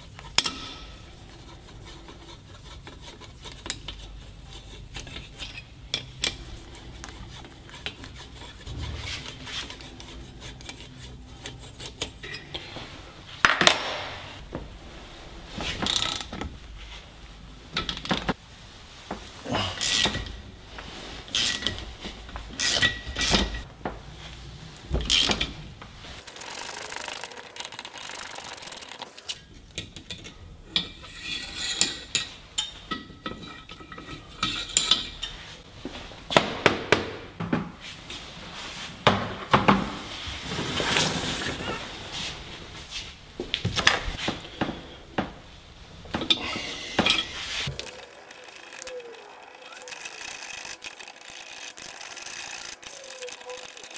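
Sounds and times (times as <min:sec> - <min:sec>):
ratchet clicking: 0:26.2 - 0:29.4, 0:47.8 - 0:53.9.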